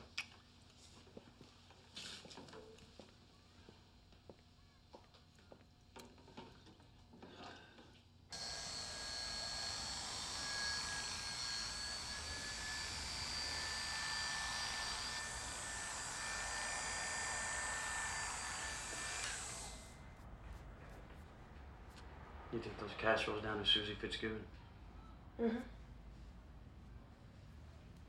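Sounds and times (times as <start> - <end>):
electric hair clippers buzzing: 8.3 - 20.0.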